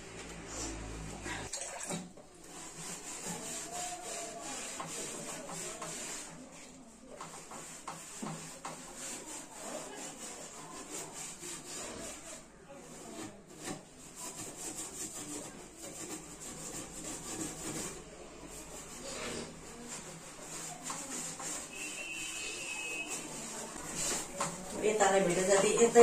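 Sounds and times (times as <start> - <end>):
hand scrubbing a metal hood: 2.3 - 26.0.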